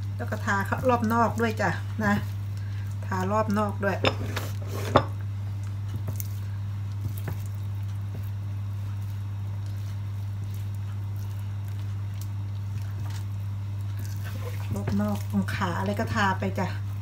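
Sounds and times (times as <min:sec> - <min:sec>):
steady low hum: 0:00.0 - 0:17.0
wet squishes of hands on chicken: 0:05.5 - 0:17.0.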